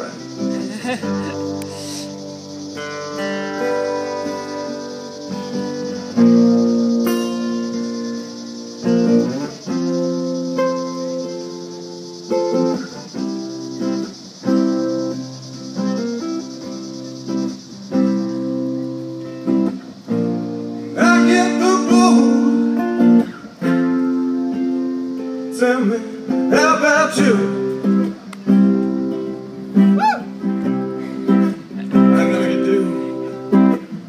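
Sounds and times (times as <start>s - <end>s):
acoustic guitar strumming: 0.0s - 34.0s
man singing: 20.9s - 22.7s, 25.5s - 28.0s, 31.9s - 33.4s.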